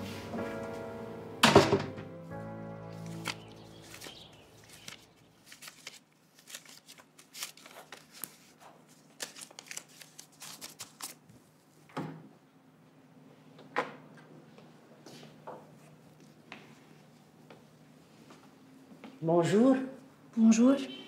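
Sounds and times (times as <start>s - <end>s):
playing cards shuffled: 2.9s - 11.2s.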